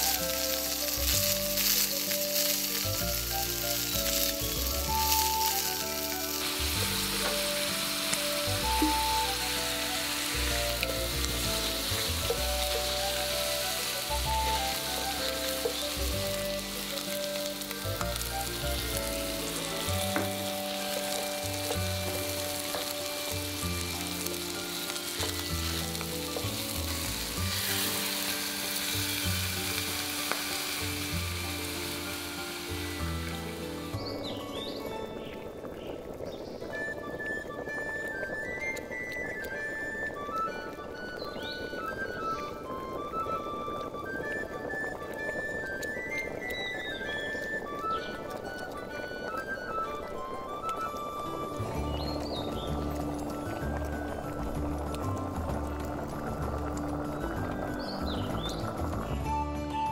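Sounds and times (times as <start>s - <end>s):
wooden spoon stirring: 0.0s - 34.2s
milk pouring into pan: 0.0s - 59.2s
chicken sizzling in frying pan: 0.0s - 59.3s
background music: 0.0s - 59.9s.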